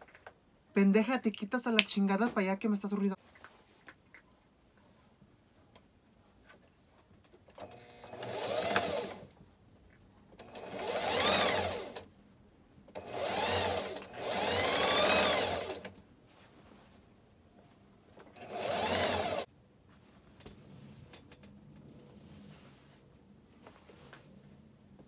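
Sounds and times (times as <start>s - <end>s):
sewing machine motor whine: 7.6s - 9.2s, 10.4s - 12.0s, 13.0s - 15.9s, 18.4s - 19.4s.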